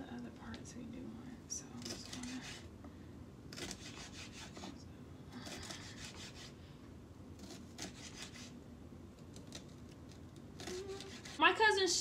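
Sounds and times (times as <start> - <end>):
knife slicing pepper on board: 3.6 - 4.8, 7.4 - 8.6, 10.6 - 11.4.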